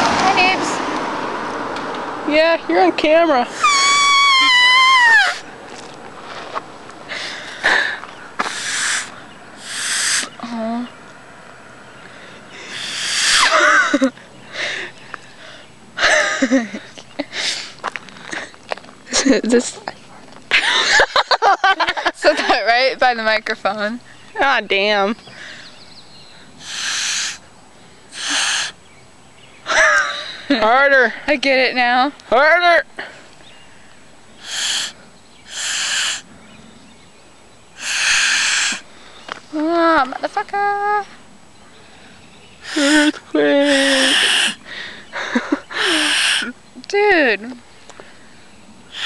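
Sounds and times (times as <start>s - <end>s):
wavering squeak: 3.6s - 5.5s
breathy blows through grass blade: 8.4s - 10.3s, 26.6s - 27.4s, 28.1s - 28.8s
breath blown through grass blade: 8.4s - 10.4s, 12.6s - 13.6s, 26.6s - 27.4s, 28.1s - 28.8s, 34.4s - 36.3s, 37.8s - 38.9s, 43.7s - 44.6s, 45.8s - 46.5s.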